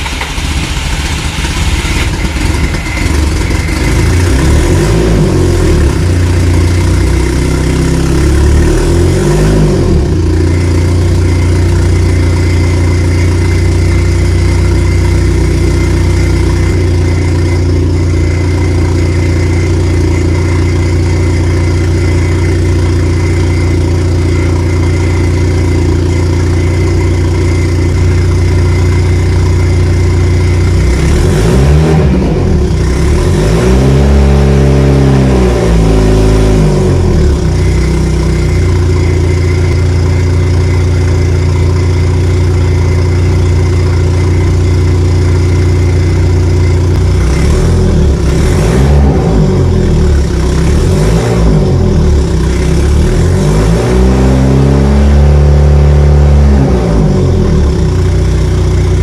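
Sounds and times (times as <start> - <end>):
car engine idling and revving: 0.0 - 59.0.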